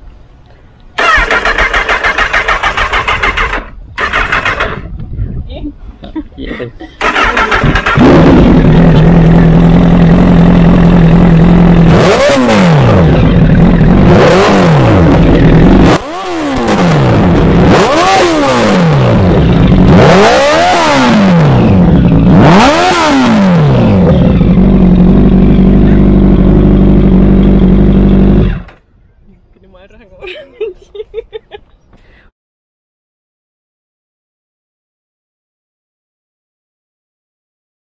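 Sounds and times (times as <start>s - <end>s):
motorcycle engine revving: 1.0s - 5.0s, 7.0s - 28.8s.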